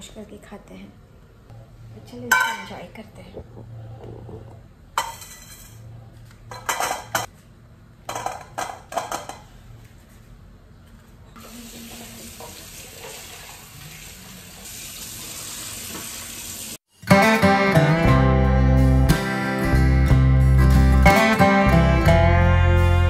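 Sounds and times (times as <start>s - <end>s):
tap water running into steel bowl: 11.4s - 16.8s.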